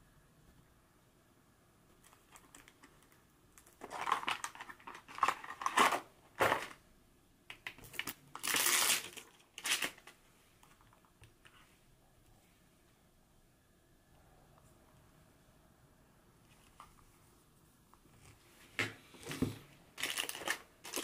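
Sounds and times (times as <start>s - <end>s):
crinkly material rustling: 2.0s - 6.8s, 16.4s - 21.0s.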